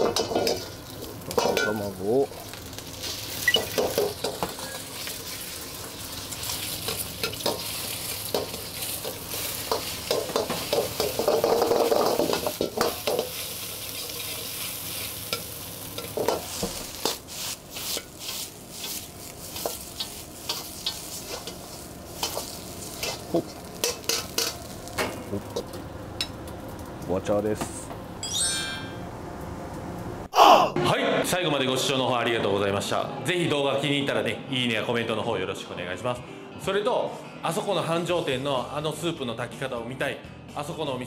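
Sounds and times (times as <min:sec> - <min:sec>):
ladle clanking against a wok: 0:00.0 - 0:01.8, 0:08.3 - 0:13.4, 0:22.2 - 0:26.4
rice sizzling in a wok: 0:00.0 - 0:26.9.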